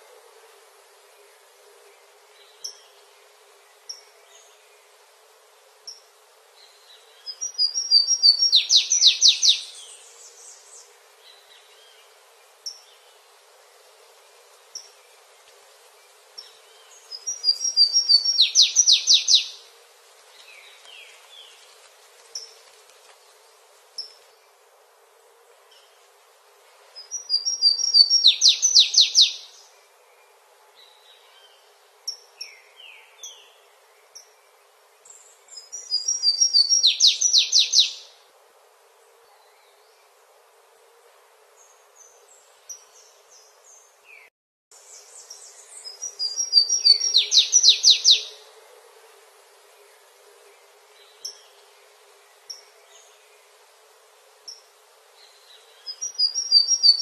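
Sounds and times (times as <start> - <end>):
songbird singing trilled phrase: 46.2 - 48.3.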